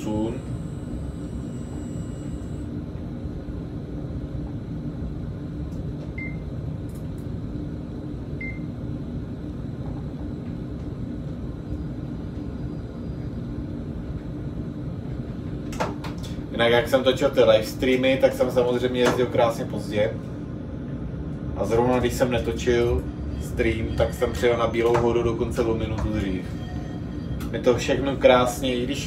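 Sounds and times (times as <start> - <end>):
tram rumble and hum: 0.0 - 29.0
short high beeps: 0.3 - 2.6.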